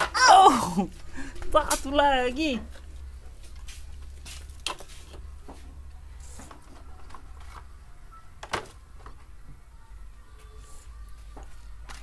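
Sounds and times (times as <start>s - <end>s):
plastic toys knocking and clattering: 6.3s - 9.4s.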